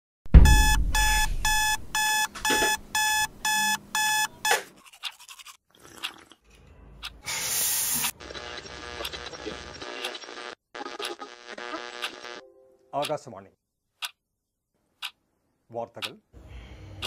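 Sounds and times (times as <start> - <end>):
alarm clock beeping: 0.4 - 4.4
loud hiss: 7.3 - 8.1.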